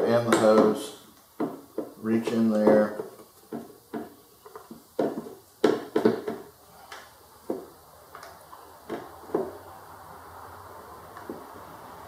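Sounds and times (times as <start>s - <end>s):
hard plastic parts knocking: 1.4s - 6.5s.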